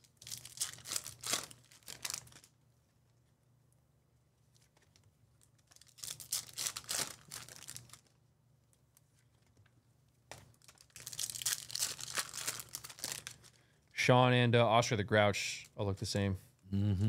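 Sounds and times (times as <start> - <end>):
foil wrappers tearing and crinkling: 0.0 - 2.5, 5.5 - 8.2, 10.5 - 13.6.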